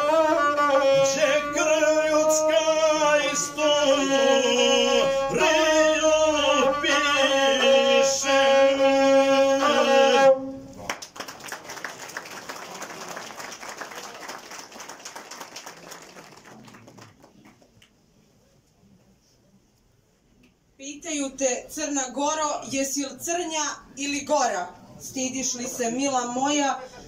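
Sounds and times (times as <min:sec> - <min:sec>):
bowed single-string fiddle melody: 0:00.0 - 0:10.4.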